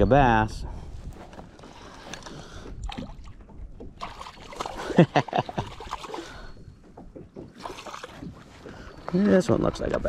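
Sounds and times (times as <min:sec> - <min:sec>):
faint water noise: 0:00.8 - 0:10.0
fish thrashing and splashing: 0:01.8 - 0:09.1.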